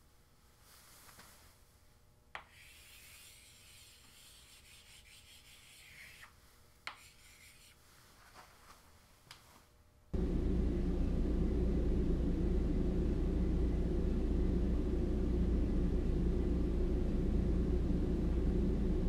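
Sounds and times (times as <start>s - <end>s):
chalk scraping on blackboard: 2.4s - 6.3s, 6.9s - 7.8s
chalk tapping on board: 2.4s - 7.8s.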